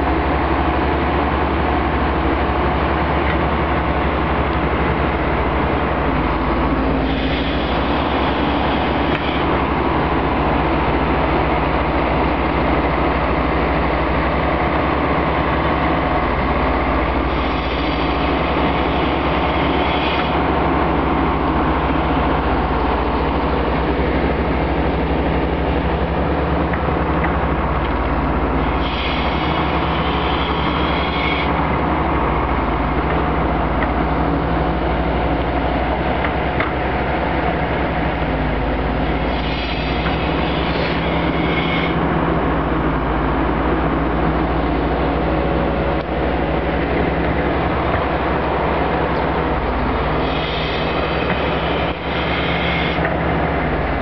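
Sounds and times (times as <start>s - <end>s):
excavator diesel engine digging: 0.0s - 54.0s
high squealing hiss: 6.9s - 9.5s, 28.6s - 31.6s, 39.2s - 42.0s, 49.8s - 53.0s.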